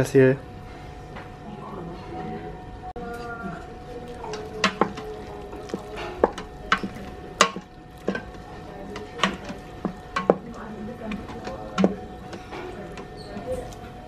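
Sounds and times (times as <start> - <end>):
wooden spoon scraping steel pot: 4.1 - 14.0.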